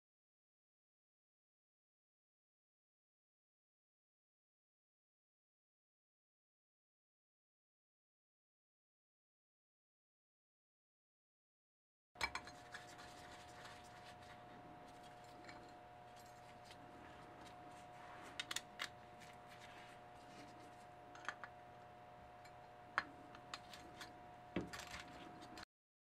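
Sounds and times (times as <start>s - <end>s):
faint steady hum: 12.2s - 25.6s.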